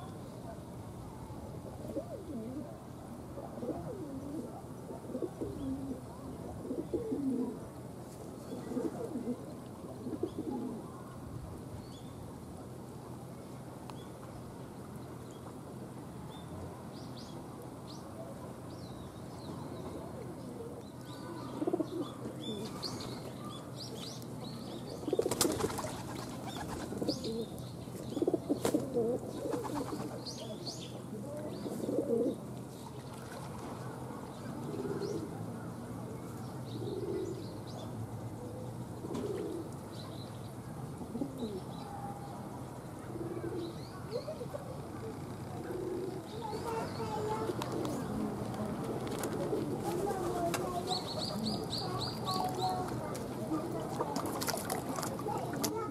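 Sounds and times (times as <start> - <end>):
pigeons cooing: 1.8 - 2.8, 3.4 - 7.6, 8.5 - 10.9, 21.4 - 22.8, 24.9 - 32.4, 34.5 - 35.4, 36.8 - 37.5, 39.0 - 39.7, 41.0 - 42.3, 43.0 - 48.4, 49.1 - 55.9
small birds chirping: 43.5 - 48.2, 50.0 - 53.6.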